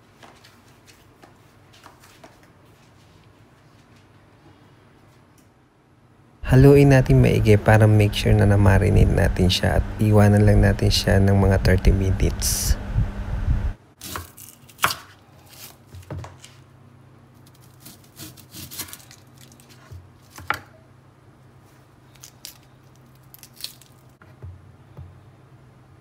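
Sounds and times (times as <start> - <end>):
onion skin rubbing: 17.4 - 20.4.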